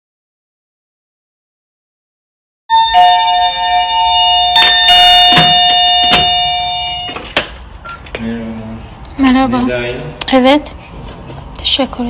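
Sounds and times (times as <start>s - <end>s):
electronic doorbell chime: 2.7s - 8.0s
door lock clicks: 5.2s - 6.4s.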